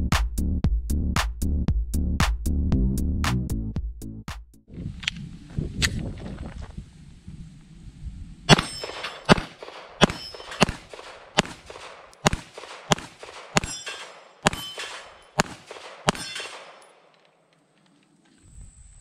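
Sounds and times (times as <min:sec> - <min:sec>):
metallic ring: 0:08.5 - 0:09.3, 0:10.0 - 0:10.7, 0:13.6 - 0:15.4, 0:16.1 - 0:17.0
pistol shots: 0:08.5 - 0:17.3.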